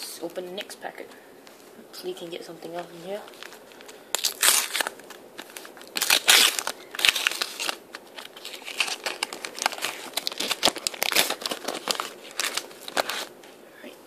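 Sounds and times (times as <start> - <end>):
plastic wrapper crinkling and tearing: 2.9 - 13.4.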